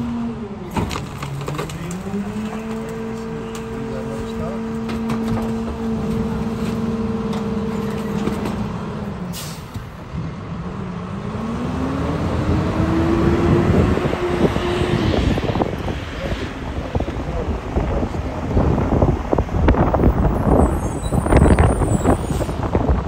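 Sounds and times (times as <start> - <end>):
diesel truck engine revving: 0.0 - 23.0
air brakes hissing: 9.3 - 9.9.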